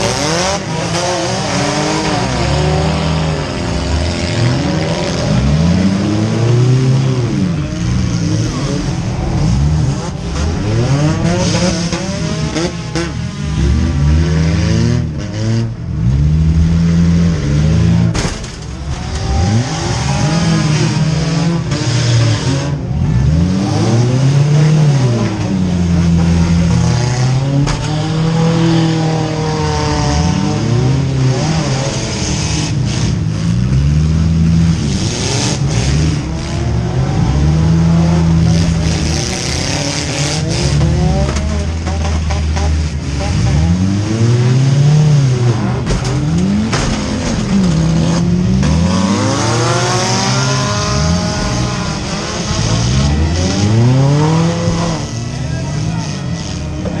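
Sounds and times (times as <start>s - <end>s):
car engine revving: 0.0s - 57.0s
car crash bang: 18.1s - 19.5s, 45.7s - 47.8s.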